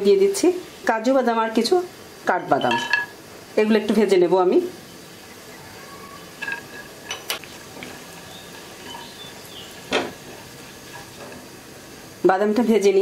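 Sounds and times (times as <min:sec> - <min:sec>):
nuts sizzling in oil: 0:00.0 - 0:13.0
spatula scraping a pan: 0:06.4 - 0:11.5.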